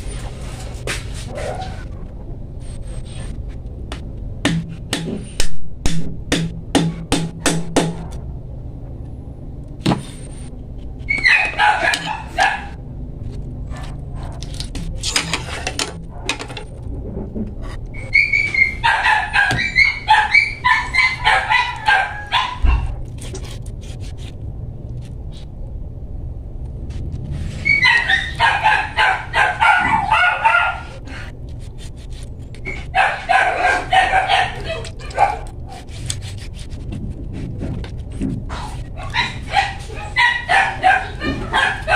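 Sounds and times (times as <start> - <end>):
dog barking: 11.2 - 12.8, 18.6 - 23.0, 27.7 - 31.0, 32.9 - 35.8, 39.0 - 41.9.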